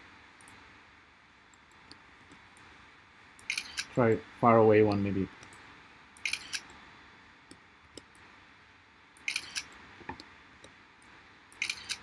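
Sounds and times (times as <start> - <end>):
camera shutter click: 3.5 - 3.9, 6.2 - 6.7, 9.2 - 9.7, 11.6 - 12.0.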